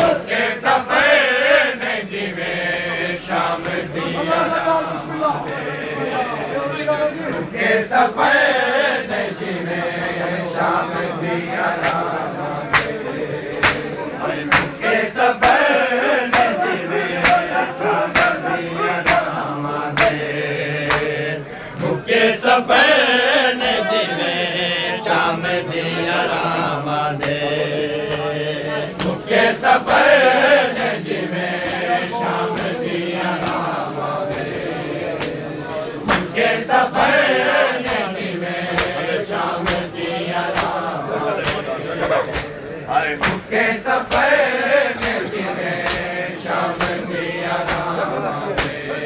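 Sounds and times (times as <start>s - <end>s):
men chanting in chorus: 0.0s - 49.0s
hands slapping chests: 11.8s - 14.8s, 15.4s - 19.4s, 20.0s - 21.1s, 27.2s - 28.3s, 28.9s - 29.2s, 33.4s - 34.5s, 35.2s - 36.4s, 38.7s - 42.6s, 43.2s - 44.4s, 45.0s - 48.8s.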